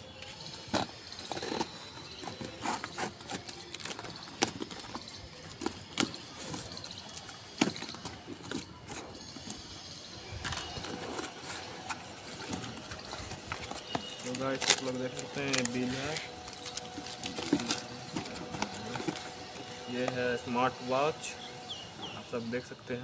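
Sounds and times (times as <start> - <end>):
packing tape tearing: 0.6 - 9.6, 10.3 - 20.3
cardboard flaps scraping: 10.5 - 20.1.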